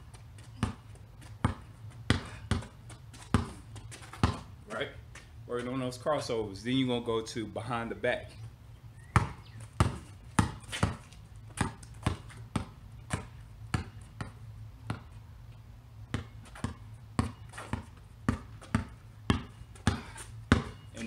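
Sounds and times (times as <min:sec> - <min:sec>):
basketball bouncing on concrete: 0:00.0 - 0:05.8, 0:09.0 - 0:15.2, 0:16.1 - 0:21.0.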